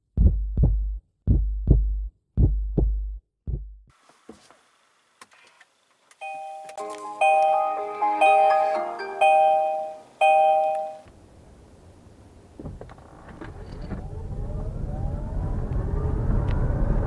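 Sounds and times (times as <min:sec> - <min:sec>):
heartbeat-like low thumps: 0:00.0 - 0:03.9
bell-like power-on chime: 0:06.2 - 0:11.1.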